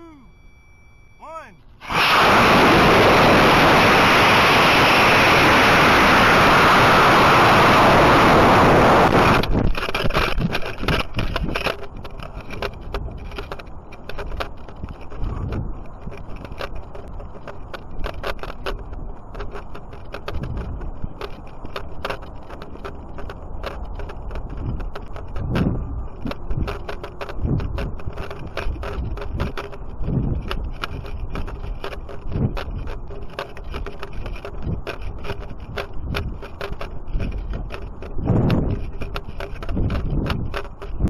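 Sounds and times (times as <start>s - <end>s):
faint wind: 0.0s - 41.0s
rocket motor rush: 1.8s - 14.0s
clicks and rattles: 9.2s - 41.0s.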